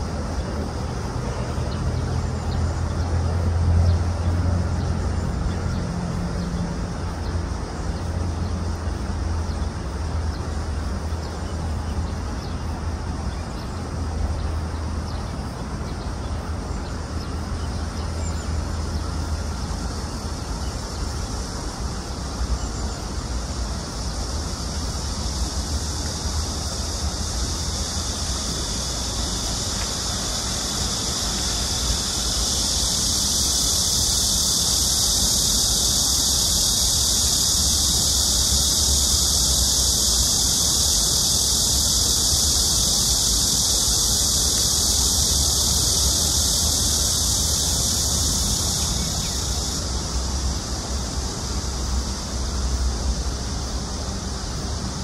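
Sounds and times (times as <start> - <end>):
high-pitched hiss: 0.0 - 55.0.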